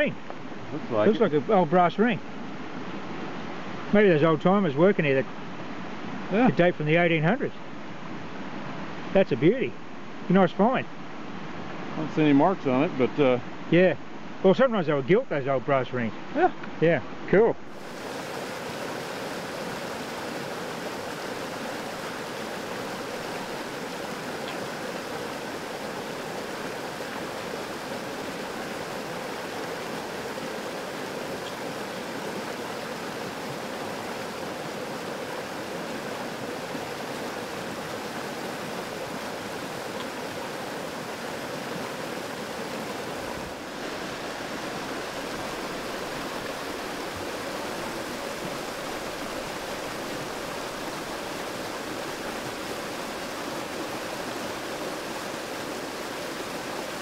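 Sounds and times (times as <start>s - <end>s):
creek water rushing over rocks: 17.6s - 57.0s.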